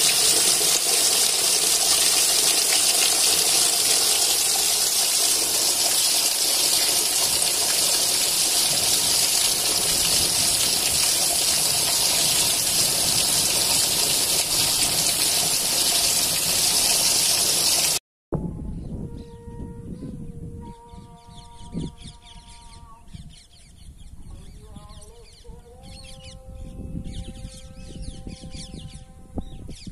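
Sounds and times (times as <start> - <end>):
heavy rain pouring: 0.0 - 18.0.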